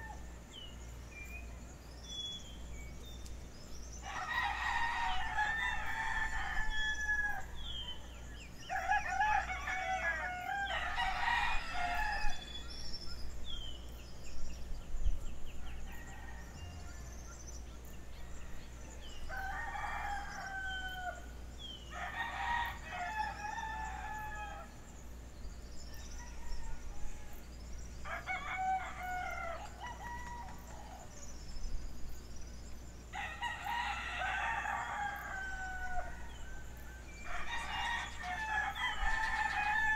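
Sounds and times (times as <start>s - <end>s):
low steady hum: 0.0s - 39.9s
small birds chirping: 0.0s - 39.9s
rooster crowing: 4.0s - 8.0s, 8.7s - 12.5s, 18.2s - 21.3s, 21.9s - 24.7s, 28.0s - 31.0s, 33.2s - 39.9s.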